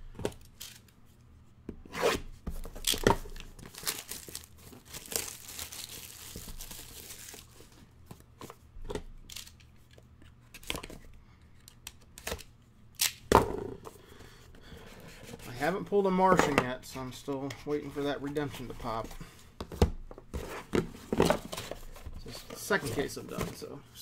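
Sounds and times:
plastic wrap tearing and crinkling: 2.8 - 7.6.

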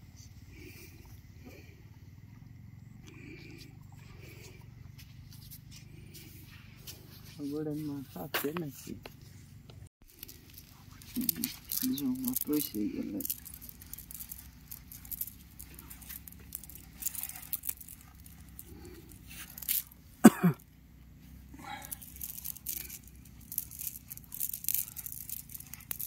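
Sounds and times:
man coughing: 20.2 - 20.6.

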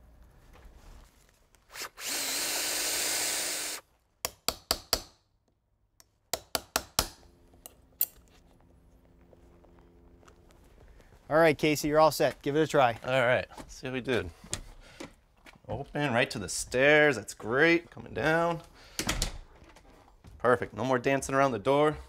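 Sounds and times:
cordless drill boring wood: 1.7 - 3.8
hammer tapping wood chisel: 4.2 - 5.2, 6.0 - 7.2.

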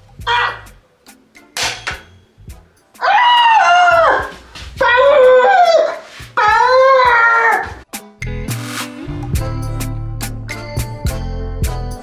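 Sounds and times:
bass line: 8.2 - 12.0.

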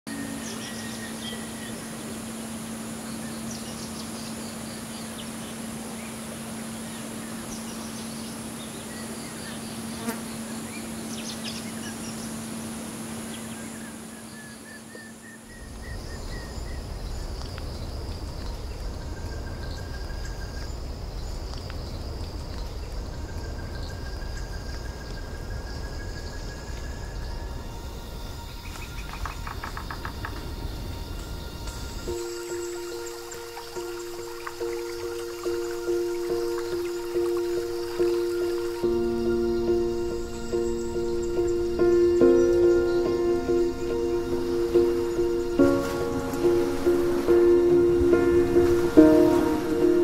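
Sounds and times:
bird chirps: 0.1 - 12.4, 31.1 - 50.0
high insect trill: 0.1 - 50.0
insect drone: 0.1 - 50.0
high bird calls: 31.1 - 50.0.

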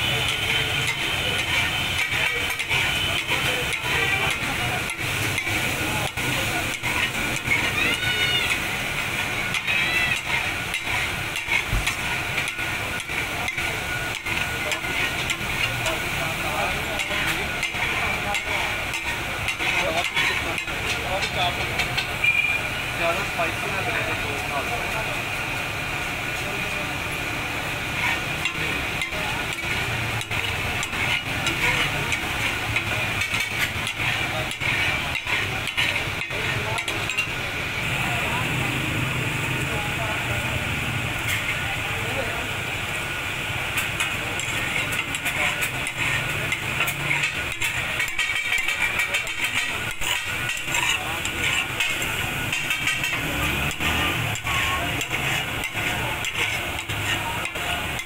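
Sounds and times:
meat sizzling: 0.0 - 58.0
metal spatula clacking on iron griddle: 0.2 - 22.4, 28.0 - 37.4, 43.7 - 58.0.

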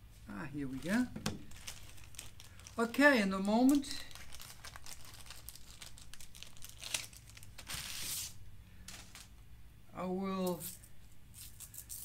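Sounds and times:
plastic bag crinkling: 0.6 - 9.3.

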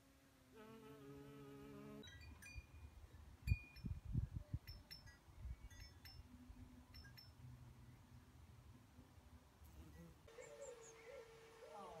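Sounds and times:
wind buffeting microphone: 3.5 - 5.7.

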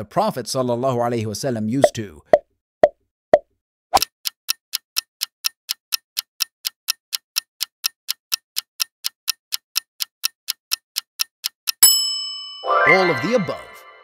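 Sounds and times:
clock ticking: 4.0 - 12.0.

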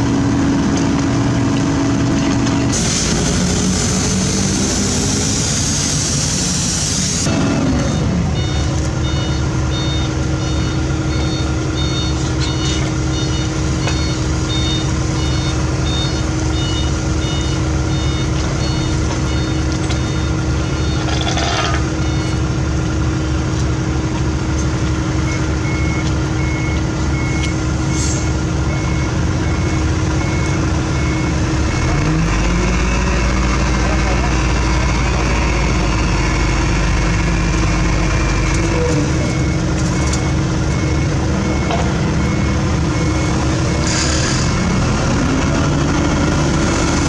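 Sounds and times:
diesel engines running: 0.0 - 47.0
reversing alarm beeping: 7.2 - 22.4, 25.2 - 47.0.

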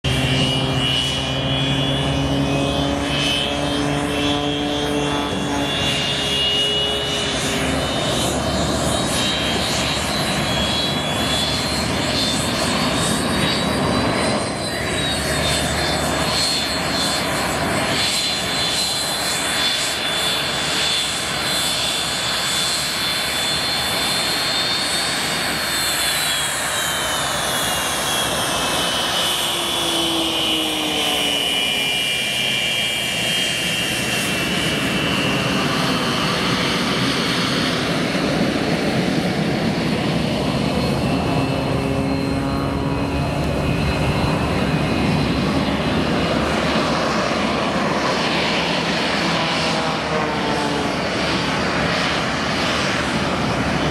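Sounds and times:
high engine whine: 0.0 - 53.9
jet engine running: 0.0 - 53.9
low droning tone: 0.1 - 18.5.

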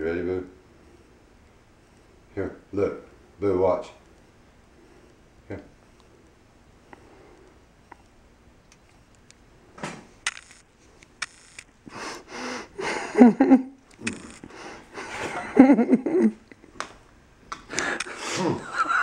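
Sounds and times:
breathy wheezes and sniffs: 11.8 - 13.1, 14.0 - 15.4, 17.7 - 18.6.

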